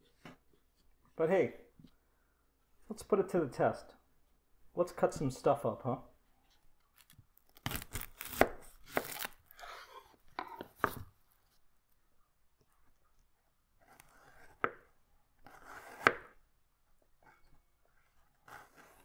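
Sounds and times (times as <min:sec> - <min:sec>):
knife crunching through onion: 0:07.0 - 0:10.0.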